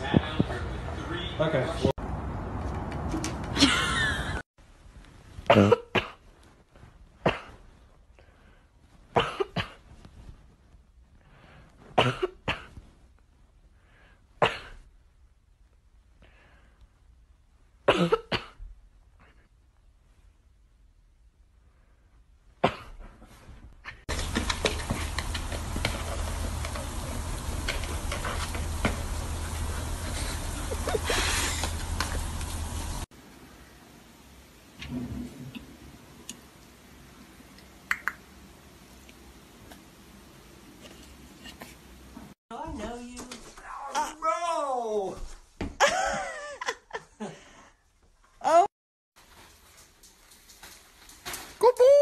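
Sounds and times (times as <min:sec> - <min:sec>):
frisbee tapping and scraping on dirt: 0:24.1 - 0:27.0
low outdoor rumble: 0:24.1 - 0:37.6.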